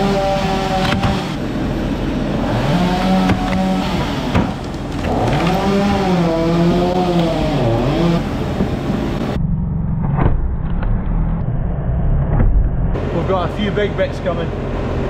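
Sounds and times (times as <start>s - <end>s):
wood cracking as it splits: 0.0s - 1.4s, 2.5s - 9.0s
tractor engine whining under load: 0.0s - 9.8s.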